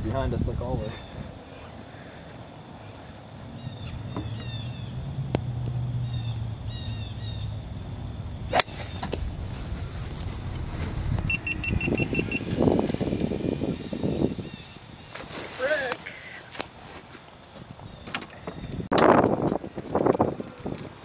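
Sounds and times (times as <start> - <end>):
golf cart rumbling away: 1.1 - 15.7
golf club striking ball: 8.4 - 9.3.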